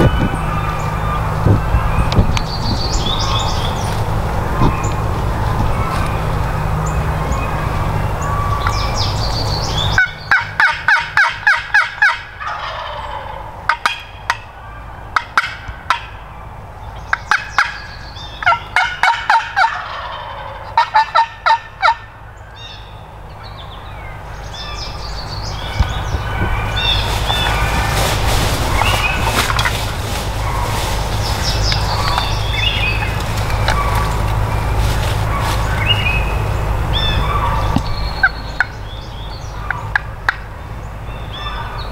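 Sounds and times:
turkey yelping: 10.0 - 14.4, 18.4 - 22.1, 30.4 - 34.4, 37.0 - 38.7.

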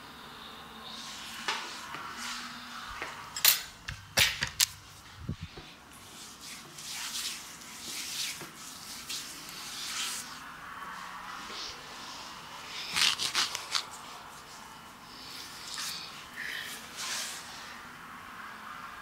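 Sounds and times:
hands rubbing cream on skin: 5.0 - 10.4.

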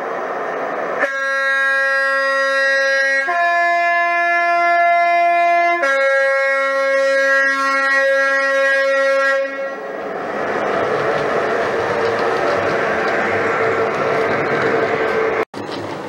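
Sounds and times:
model train two-tone horn: 1.0 - 10.0.

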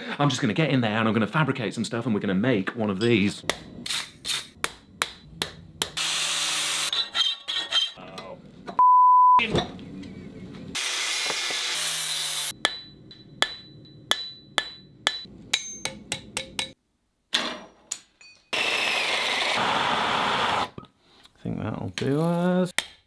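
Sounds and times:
hammer striking steel on anvil: 12.5 - 16.8.

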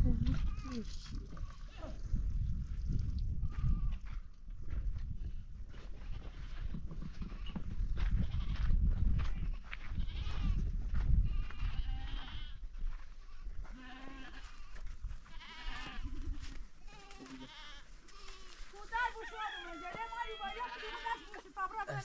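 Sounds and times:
livestock bleating: 9.4 - 10.6, 11.3 - 12.6, 13.2 - 22.0.

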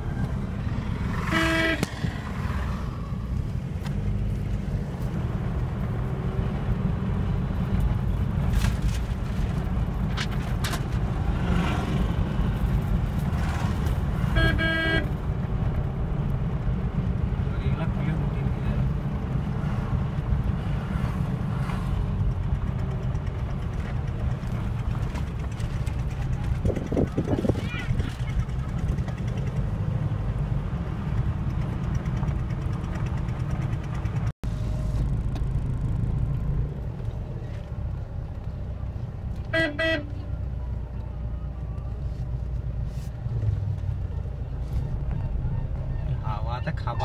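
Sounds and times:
car engine and road noise: 0.0 - 47.0
vehicle horn short beeps: 1.2 - 2.0, 14.3 - 15.2, 39.4 - 40.3.

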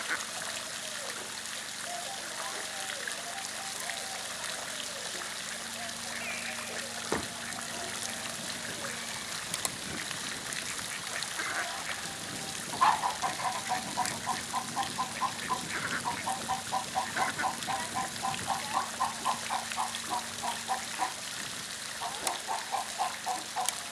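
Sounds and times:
water dripping and lapping: 0.0 - 23.9
ducks quacking: 5.8 - 21.2, 22.0 - 23.9.

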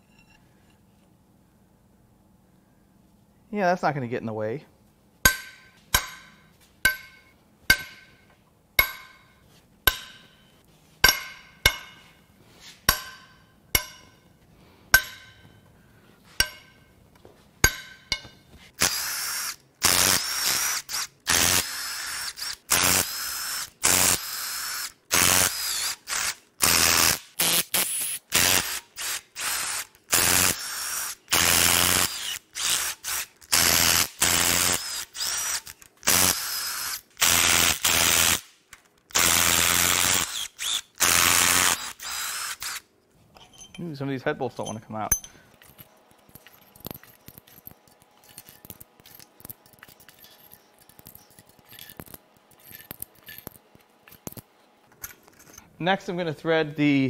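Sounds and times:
cordless ratchet whirring: 18.8 - 38.4, 39.1 - 42.8
metallic cracks of bolts breaking loose: 43.4 - 55.6.

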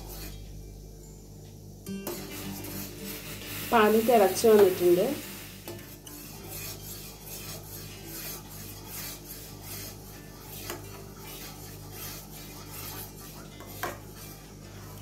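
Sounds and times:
metal spoon scraping saucepan: 0.0 - 0.5, 2.0 - 15.0.

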